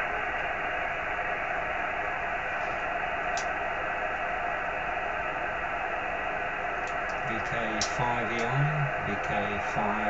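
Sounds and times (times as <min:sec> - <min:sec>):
radio receiver hiss: 0:06.9 - 0:10.0.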